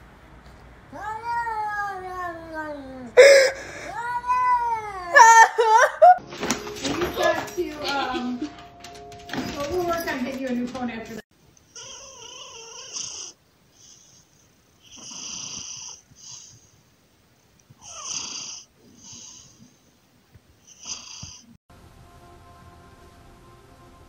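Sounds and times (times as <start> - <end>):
cat snoring: 11.8 - 14.2, 14.8 - 16.7, 17.8 - 19.7, 20.6 - 21.6.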